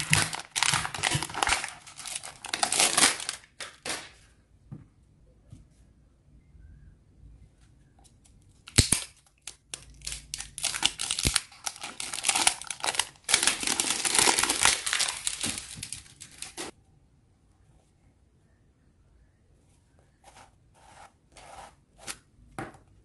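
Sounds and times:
plastic wrapping crackling: 0.0 - 4.2, 8.8 - 16.7.

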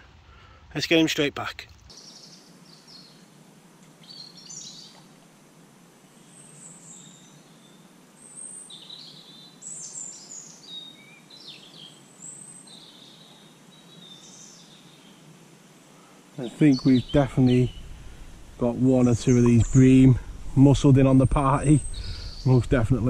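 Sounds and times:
small birds chirping: 1.8 - 5.3, 6.0 - 15.4, 16.0 - 23.0
faint background hush: 14.7 - 23.0.

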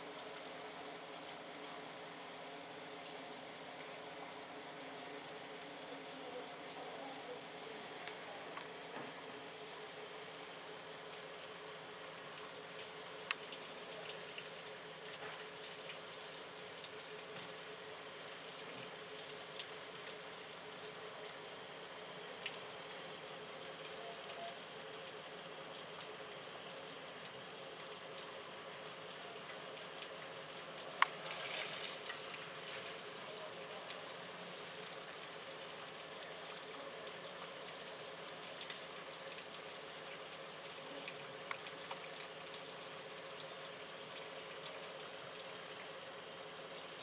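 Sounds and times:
steady rain falling: 0.0 - 47.0
raindrops ticking: 10.8 - 47.0.

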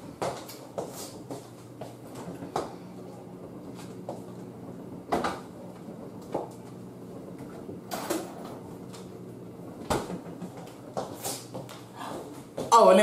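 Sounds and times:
low steady hum: 0.0 - 13.0
kitchen doors opening and shutting: 4.7 - 10.7.

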